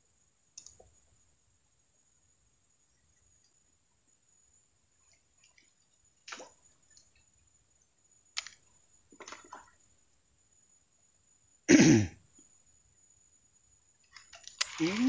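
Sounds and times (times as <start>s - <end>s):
small splashes in water: 5.4s - 6.7s.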